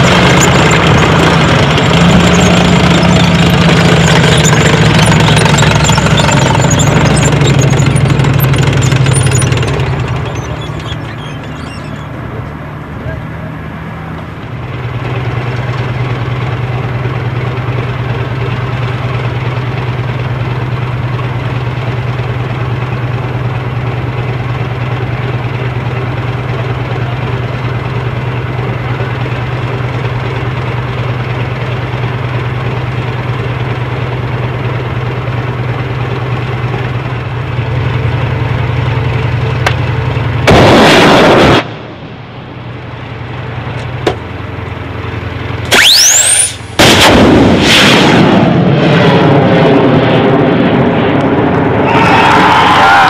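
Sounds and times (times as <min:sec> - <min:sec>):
tracked vehicle engine humming: 0:00.0 - 0:53.0
loud blast: 0:40.4 - 0:42.2, 0:45.7 - 0:53.0.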